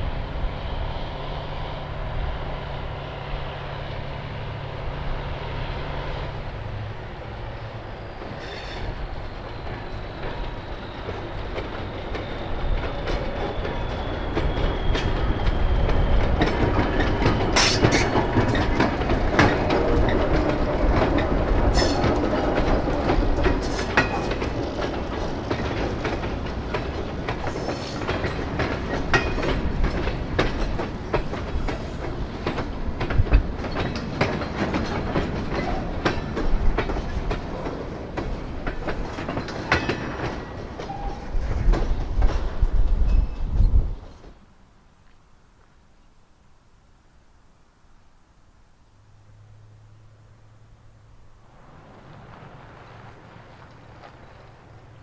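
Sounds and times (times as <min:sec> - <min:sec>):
freight train rolling past: 0:00.0 - 0:44.6, 0:49.0 - 0:55.0
wheels clicking over rail joints: 0:07.6 - 0:45.2, 0:51.5 - 0:55.0.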